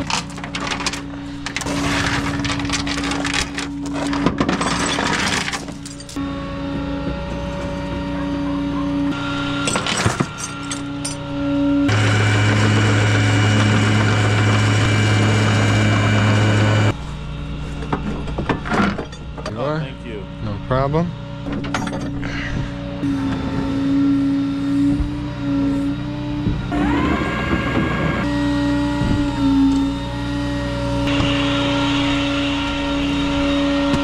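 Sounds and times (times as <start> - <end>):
hydraulics humming: 0.0 - 34.0
truck engine hum: 0.0 - 34.0
chain clinking on metal deck: 3.0 - 6.2, 9.6 - 11.2.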